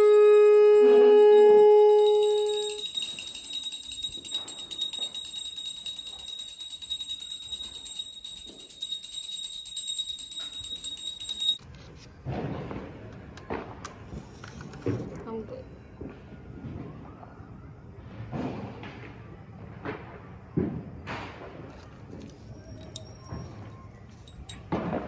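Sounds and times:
loud held note: 0:00.0 - 0:02.6
hand bell ringing rapidly: 0:00.8 - 0:11.6, 0:22.8 - 0:23.2, 0:24.3 - 0:24.7.

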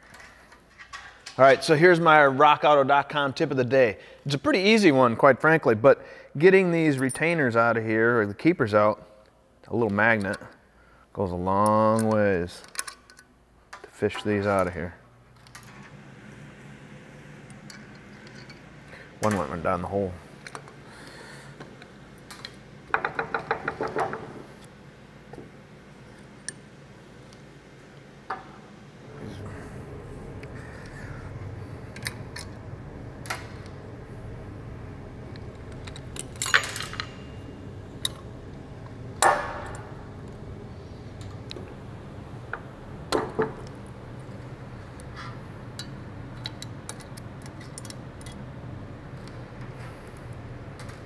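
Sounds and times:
low hum: 0:24.6 - 0:47.2
metal tools clanking: 0:35.8 - 0:38.2.

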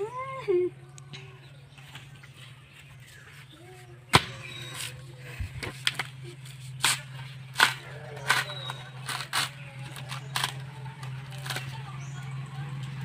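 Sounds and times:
coconuts knocking together: 0:04.1 - 0:05.0, 0:06.8 - 0:10.7.

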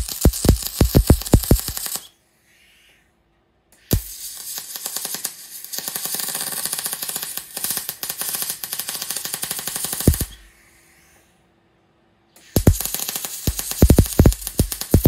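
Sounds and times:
welding arc crackling: 0:00.0 - 0:02.1, 0:03.9 - 0:10.4, 0:12.6 - 0:15.0.

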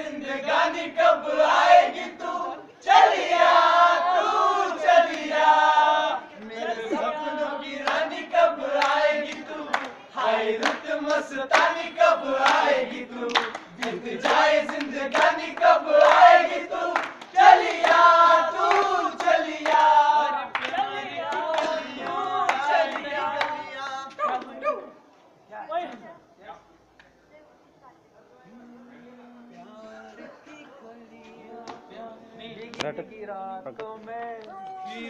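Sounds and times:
group singing without instruments: 0:00.0 - 0:24.2, 0:28.4 - 0:32.8, 0:34.8 - 0:35.0
people clapping along: 0:00.5 - 0:24.6, 0:31.6 - 0:32.0.

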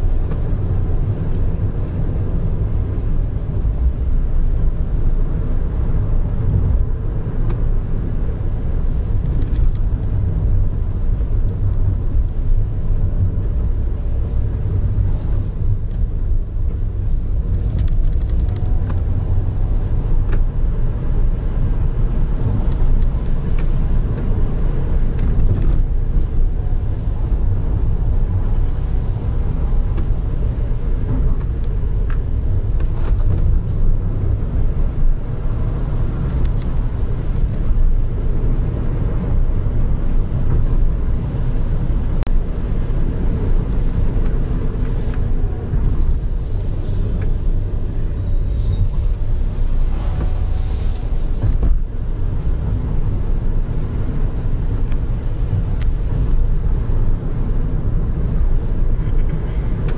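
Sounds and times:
engine and tyre rumble: 0:00.0 - 0:59.9
faint clicks and rattles: 0:17.5 - 0:19.1.

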